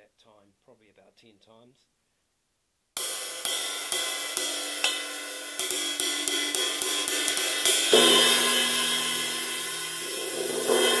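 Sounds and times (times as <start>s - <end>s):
riveted ride cymbal struck with stick: 3.0s - 11.0s.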